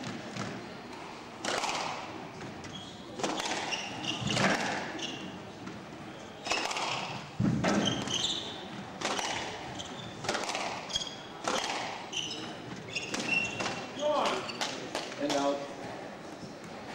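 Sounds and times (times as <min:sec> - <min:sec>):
squash ball hitting rackets and walls: 0:00.0 - 0:05.8, 0:06.4 - 0:15.5
shoes squeaking on wooden floor: 0:02.6 - 0:08.9, 0:09.6 - 0:11.3, 0:12.1 - 0:14.8.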